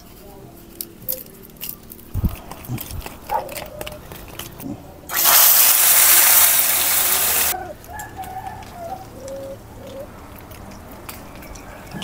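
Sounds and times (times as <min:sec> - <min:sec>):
egg sizzling in hot oil: 0:05.1 - 0:07.6.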